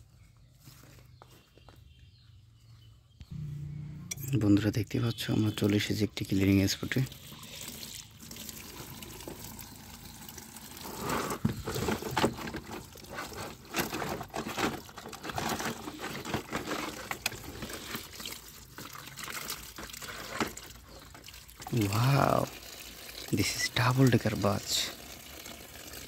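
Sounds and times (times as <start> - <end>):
tap water splashing into bucket: 7.0 - 13.0, 17.2 - 23.4.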